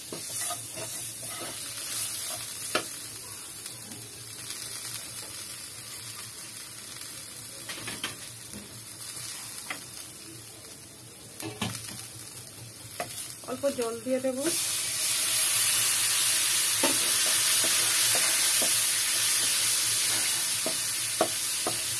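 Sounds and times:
masala sizzling in hot oil: 0.0 - 21.9.

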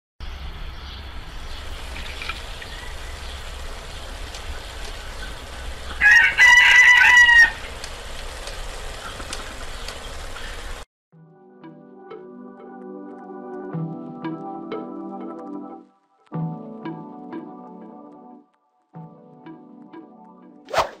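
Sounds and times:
low outdoor rumble: 0.4 - 10.8
rooster crowing: 2.7 - 3.3, 5.9 - 7.7.

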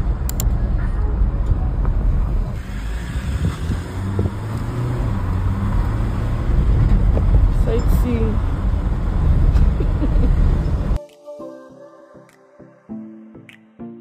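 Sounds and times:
wind noise: 0.0 - 4.6.

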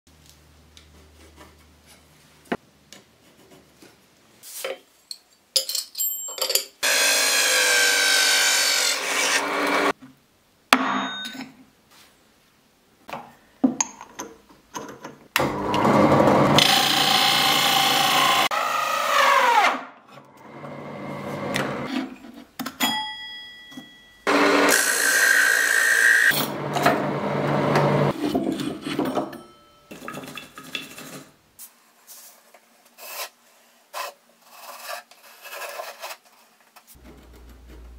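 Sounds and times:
drill press cutting plywood: 6.8 - 9.9, 15.4 - 19.8, 24.3 - 28.1.

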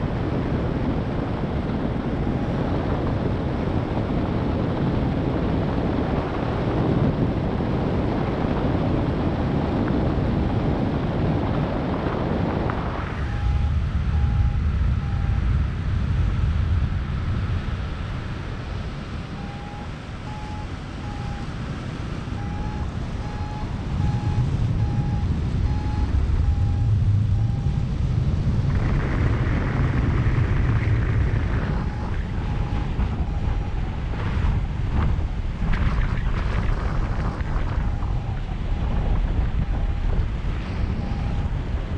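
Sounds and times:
wind buffeting microphone: 0.0 - 41.9
variometer short beeps: 13.2 - 15.5, 19.4 - 21.5, 22.4 - 27.8, 40.8 - 41.5.

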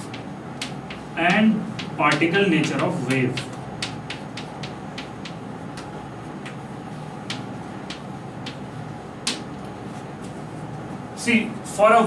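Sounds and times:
chalk tapping on a blackboard: 0.0 - 6.6, 7.2 - 9.6
steady room hum: 0.0 - 12.0.

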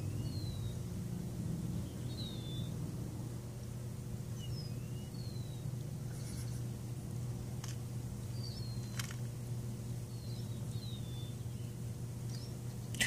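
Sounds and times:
small birds chirping: 0.0 - 2.9, 4.2 - 13.0
low outdoor hum: 0.0 - 13.0
faint clicks: 8.8 - 9.3.

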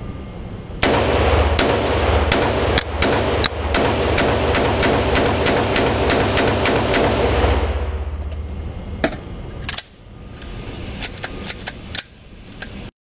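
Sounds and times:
rifle rapid fire echo: 0.8 - 8.0.

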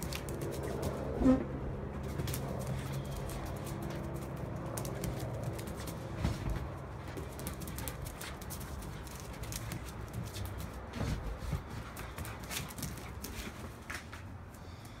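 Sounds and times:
dog claws clicking on tiles: 0.0 - 1.2, 2.0 - 6.2, 6.9 - 10.9, 11.5 - 14.2.

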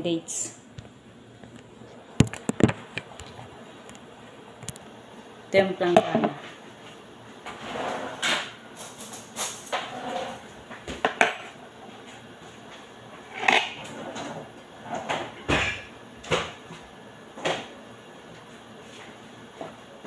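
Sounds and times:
items knocking and clattering: 2.2 - 3.3.

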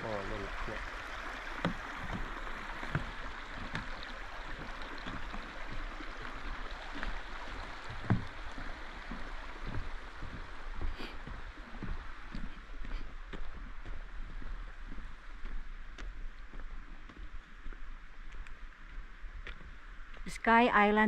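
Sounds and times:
brook babbling over rocks: 0.0 - 18.8
footsteps on wooden boardwalk: 0.8 - 20.3.

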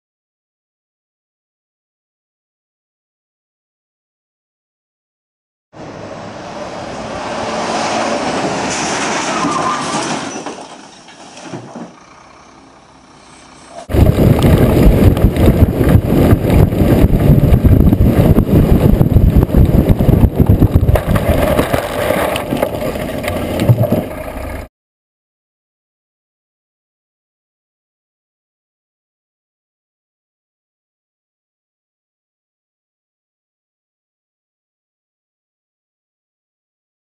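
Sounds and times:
lorry driving past: 5.8 - 9.5
rough rumble and rattle of lorry: 5.8 - 24.7.

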